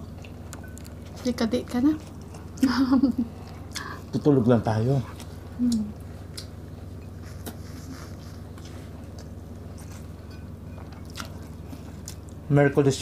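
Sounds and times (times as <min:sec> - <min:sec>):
steady low hum: 0:00.0 - 0:13.0
chewing and mouth smacks: 0:06.2 - 0:06.6, 0:10.8 - 0:12.4.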